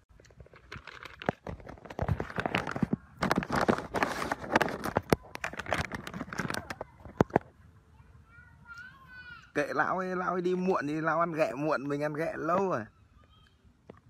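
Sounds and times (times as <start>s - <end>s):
phone handling rustling and knocks: 0.4s - 7.5s.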